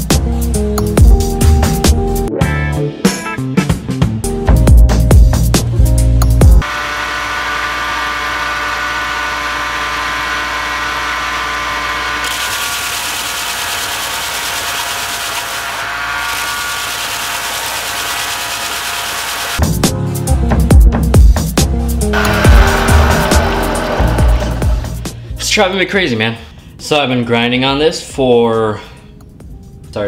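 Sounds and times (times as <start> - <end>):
belt grinder motor whine: 6.6 - 19.6, 22.2 - 25.2.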